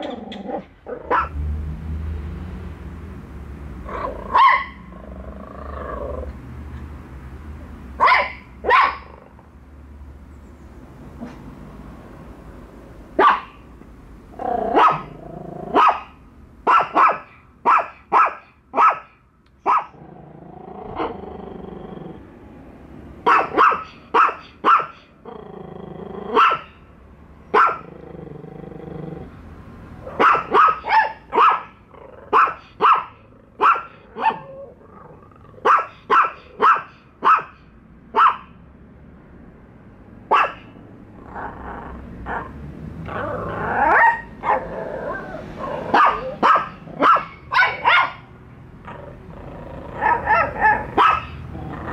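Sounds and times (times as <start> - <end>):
small dogs barking sharply: 0.0 - 1.4, 3.9 - 5.0, 7.9 - 9.3, 13.1 - 13.7, 14.4 - 20.0, 23.2 - 25.2, 26.3 - 26.8, 27.5 - 27.9, 30.0 - 34.6, 35.5 - 38.6, 40.2 - 40.8, 42.3 - 49.1, 49.9 - 51.9
dog growling low: 4.9 - 6.4, 14.4 - 15.8, 20.0 - 22.4, 25.2 - 26.4, 27.8 - 29.5, 34.4 - 35.6, 41.2 - 44.0, 44.6 - 46.4, 48.8 - 50.3, 51.4 - 51.9.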